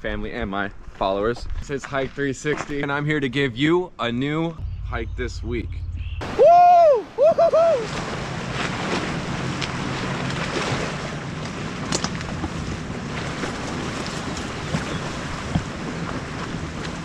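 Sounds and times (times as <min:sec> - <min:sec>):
low steady hum: 0:03.3 - 0:17.0.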